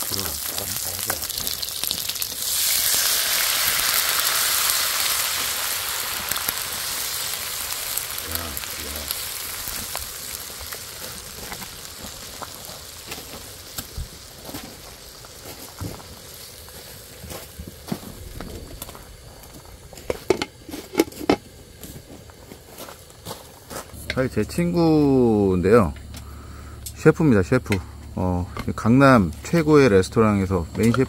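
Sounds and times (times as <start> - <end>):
rice wine poured into pan: 0.0 - 17.2
pork sizzling in a hot pan: 0.0 - 25.4
loud hiss of liquid in pan: 0.1 - 18.2.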